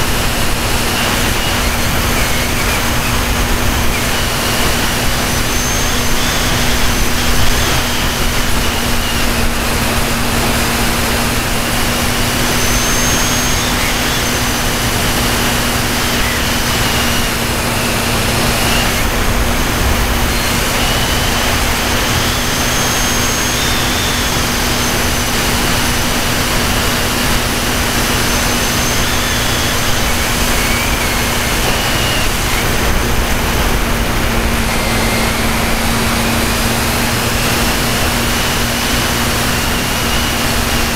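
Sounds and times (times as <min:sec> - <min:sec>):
model airplane motor whine: 0:00.0 - 0:40.9
wind rush: 0:00.0 - 0:40.9.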